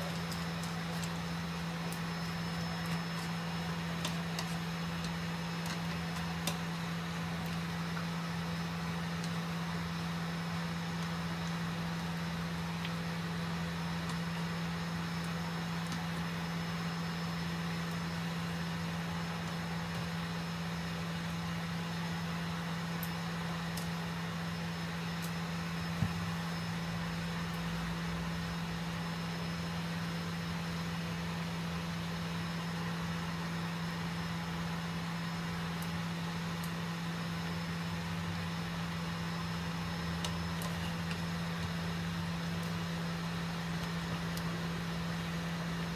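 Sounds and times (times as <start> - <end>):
electric cooktop hum: 0.0 - 45.9
water simmering in pan: 0.0 - 45.9.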